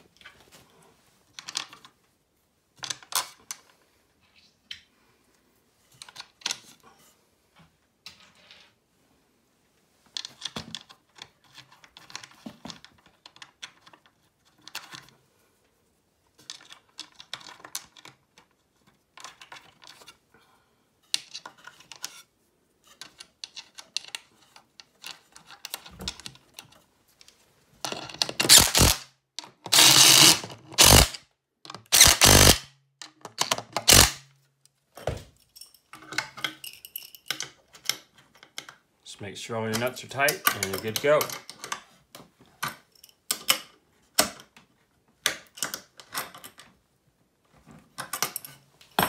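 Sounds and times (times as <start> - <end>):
nuts and washers clicking: 27.9 - 34.2
cordless power driver bursts: 28.5 - 29.0, 29.7 - 31.2, 31.9 - 32.6, 33.8 - 34.2.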